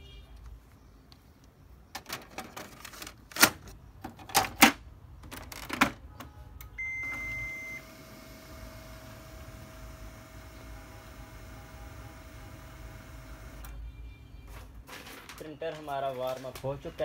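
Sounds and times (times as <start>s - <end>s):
printer electronic beep: 6.8s - 8.3s.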